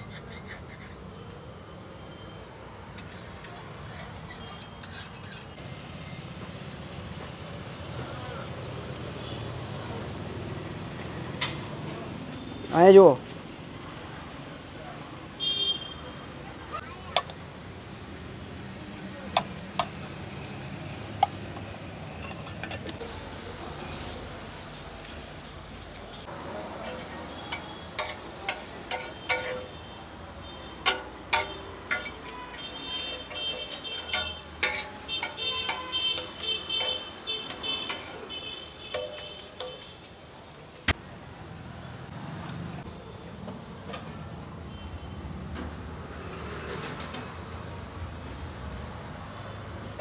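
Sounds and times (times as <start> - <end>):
metal spatula scraping griddle: 0.0 - 1.2, 3.0 - 5.6, 26.8 - 29.9, 30.8 - 39.9
masala sizzling on a griddle: 5.5 - 22.2, 22.9 - 40.9
steel spoon clinking on pot: 26.8 - 29.8, 30.8 - 40.0.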